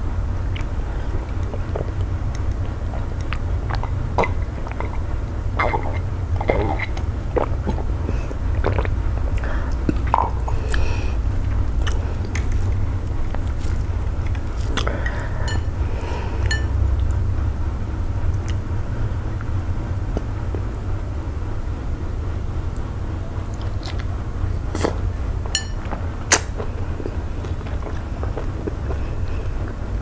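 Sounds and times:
steady low hum: 0.0s - 30.0s
person swallowing water: 0.5s - 16.6s
sticky clicks and squelches of dough: 11.7s - 15.2s.

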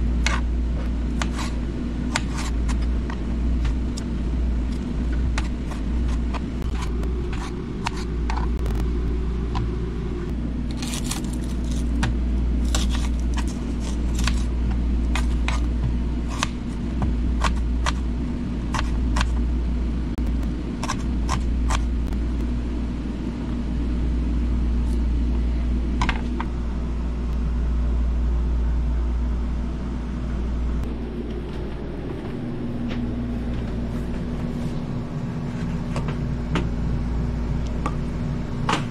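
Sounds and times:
low rumble and hum: 0.0s - 38.9s.

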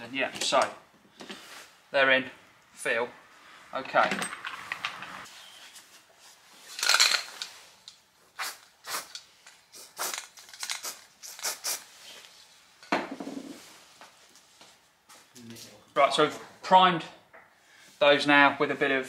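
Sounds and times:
masking tape tearing: 8.4s - 9.2s, 9.8s - 11.9s
aerosol can spraying: 8.4s - 11.9s.

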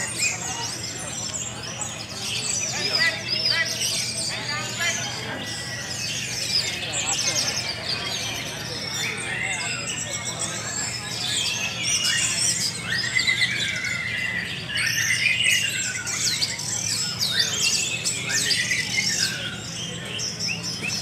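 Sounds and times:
songbirds chorus of whistles: 0.0s - 21.0s.

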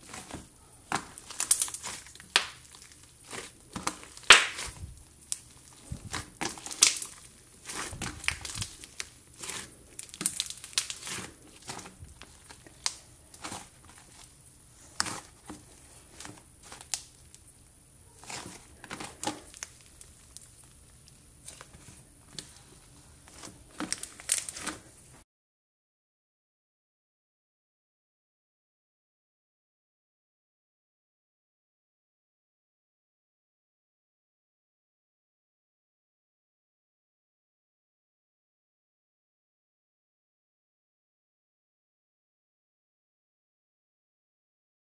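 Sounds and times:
slime crackling and popping: 0.0s - 17.6s, 18.2s - 24.9s.

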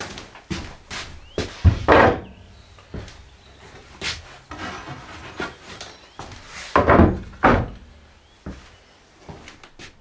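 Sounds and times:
wood rubbing or scraping: 1.0s - 7.8s.

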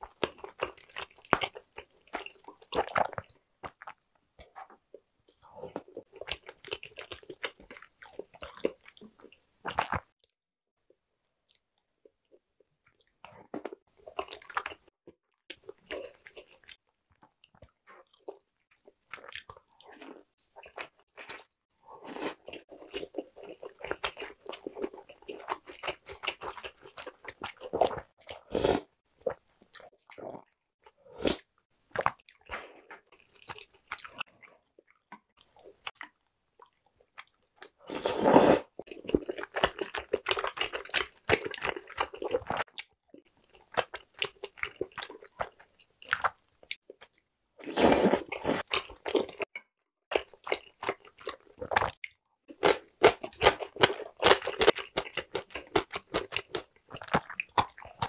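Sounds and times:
close-up chewing and biting: 38.8s - 42.9s, 50.1s - 58.0s.

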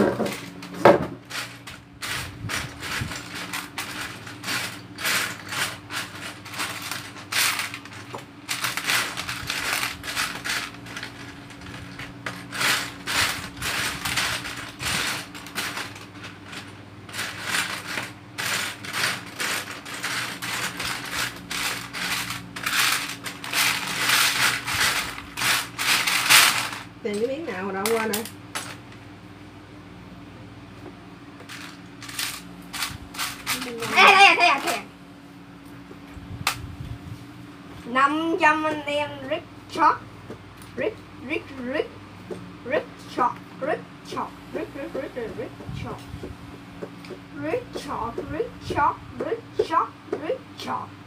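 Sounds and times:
steady low hum: 0.0s - 51.0s
plastic bricks clattering: 1.3s - 26.9s, 31.4s - 34.8s.

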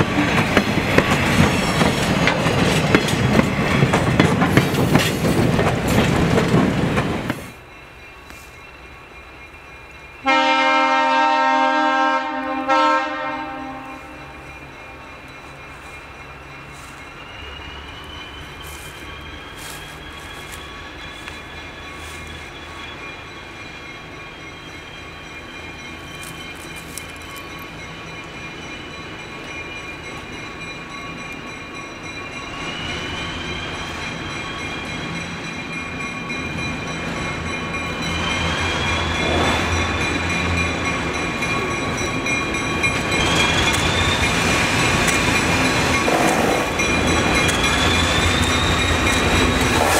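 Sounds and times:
diesel locomotive engine rumble: 0.0s - 49.9s
wheel squeal on rails: 14.2s - 49.9s.

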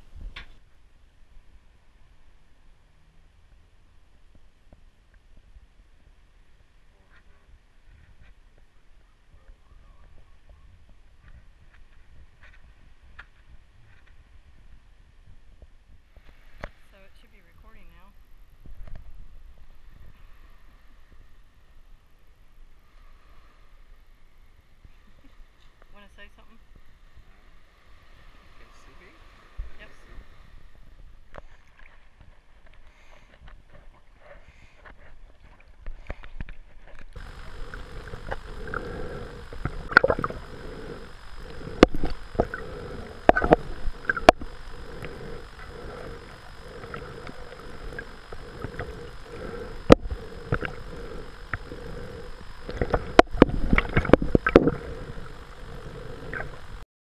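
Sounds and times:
steady hum: 0.0s - 56.9s
muffled water sloshing underwater: 29.4s - 56.8s.

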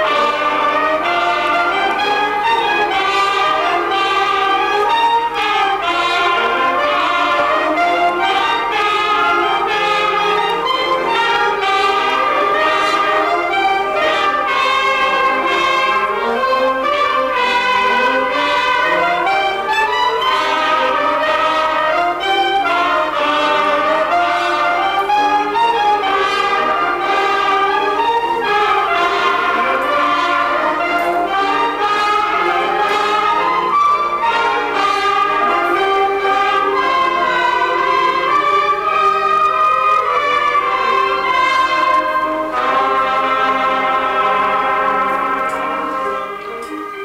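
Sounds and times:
wind band playing: 0.0s - 47.0s.

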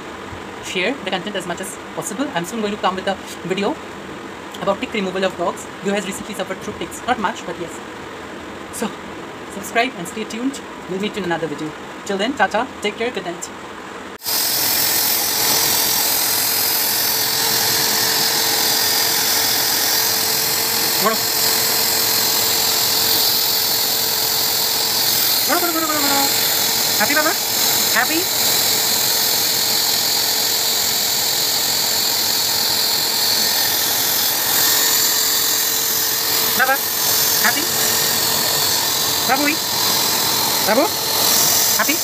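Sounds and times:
electric fan whirring: 0.0s - 42.0s
blow dryer running: 14.2s - 42.0s.

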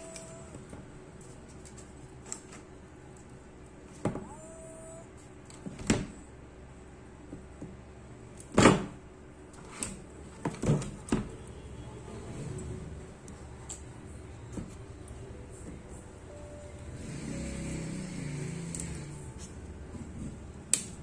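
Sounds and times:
plastic clips snapping: 20.7s - 21.0s.

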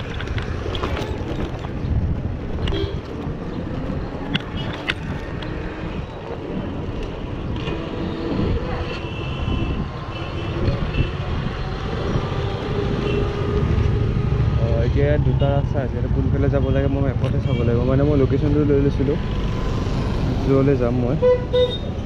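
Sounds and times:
wind rumbling on microphone: 0.0s - 17.4s
street traffic: 0.0s - 22.0s.

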